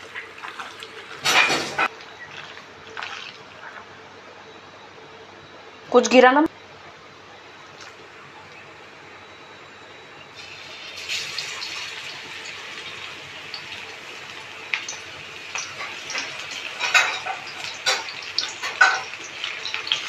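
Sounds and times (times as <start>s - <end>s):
oil crackling and popping: 0.0s - 1.9s, 10.4s - 20.0s
batter sizzling in hot oil: 0.0s - 3.8s, 10.3s - 20.0s.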